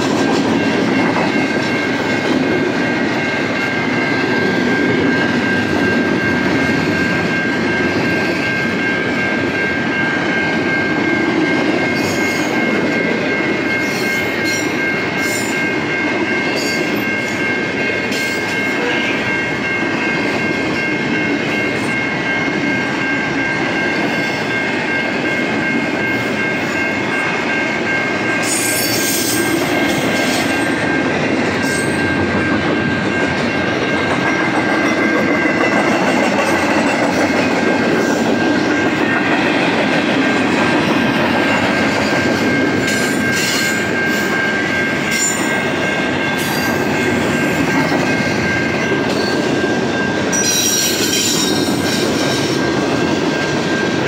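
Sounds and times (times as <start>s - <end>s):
train wheels clattering: 0.0s - 8.8s, 28.1s - 54.0s
freight train rumble: 0.0s - 54.0s
high ringing tone: 0.0s - 54.0s.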